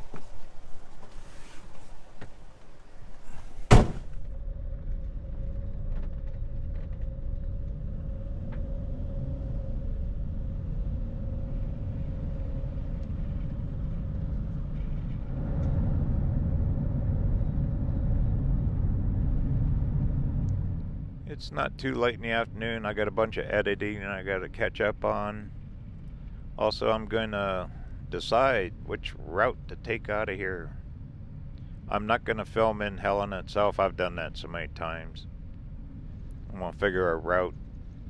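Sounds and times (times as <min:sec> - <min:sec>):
van engine and tyre rumble: 0:00.0 - 0:21.3
faint steady whine: 0:00.0 - 0:38.0
sharp knock: 0:03.7 - 0:04.2.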